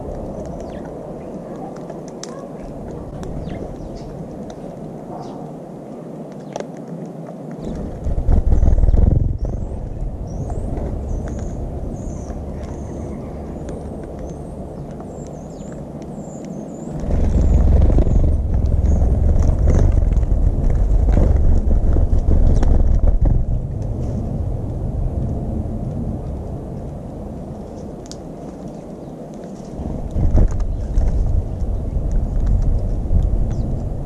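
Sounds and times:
small birds chirping: 0:00.0 - 0:06.7, 0:07.4 - 0:23.5, 0:27.5 - 0:34.0
loud low rumble: 0:07.8 - 0:28.8, 0:29.6 - 0:34.0.

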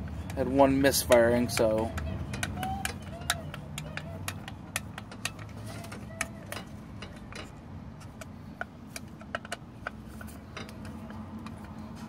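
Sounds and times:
screwdriver clicking on screws: 0:00.0 - 0:07.5.

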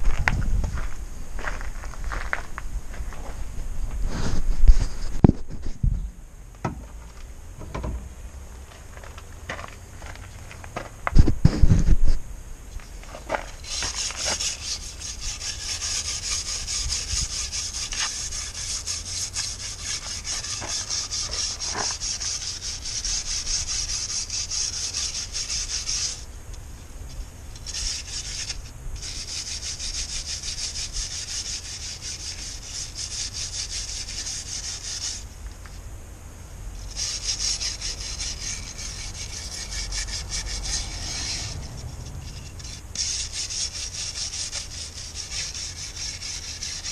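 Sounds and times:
wire brush scratching metal: 0:13.1 - 0:26.3, 0:27.1 - 0:35.3, 0:36.7 - 0:46.9.

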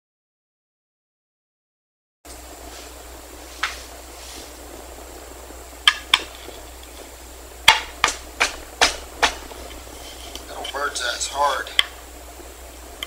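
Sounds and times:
mallet striking chisel: 0:07.7 - 0:09.4.

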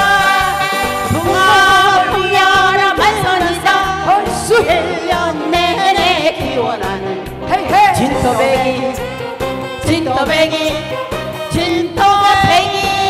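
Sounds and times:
backing track with steady beat: 0:00.0 - 0:13.0
woman singing into a microphone: 0:00.0 - 0:13.0.

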